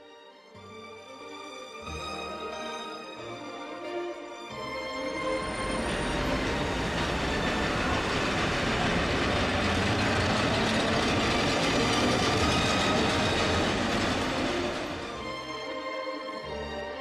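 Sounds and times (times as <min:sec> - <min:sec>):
tram rolling on rails: 0:04.6 - 0:16.0.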